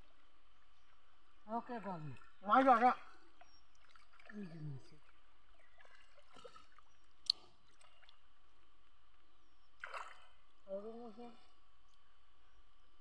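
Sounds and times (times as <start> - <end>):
splashing shallow water: 0.0 - 12.0
short splash: 9.8 - 10.4.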